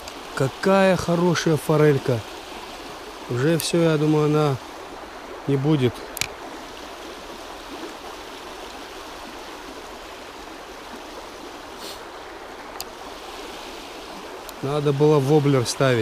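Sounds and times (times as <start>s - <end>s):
mountain stream flowing: 0.0s - 16.0s
faint clicks: 3.5s - 3.8s, 12.7s - 13.0s.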